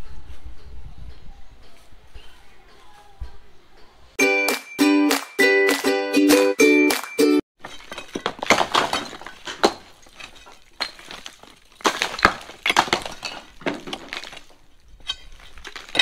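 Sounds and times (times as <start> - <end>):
bricks clattering onto rubble: 7.6 - 16.0.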